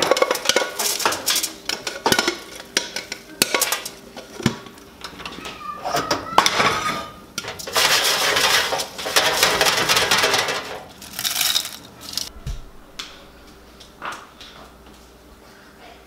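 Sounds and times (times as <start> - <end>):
popcorn rustling on metal baking sheet: 0.0 - 4.5, 6.9 - 12.3.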